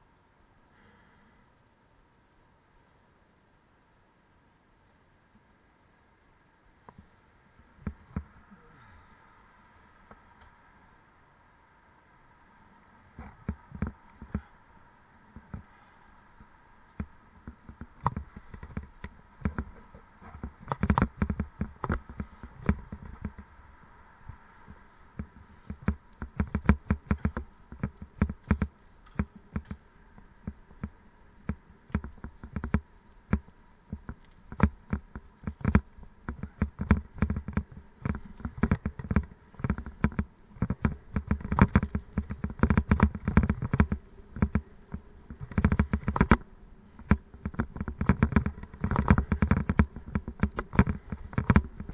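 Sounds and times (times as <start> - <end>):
faint steady whine: 0.0 - 51.9
bicycle rattling over stony path: 13.0 - 51.9.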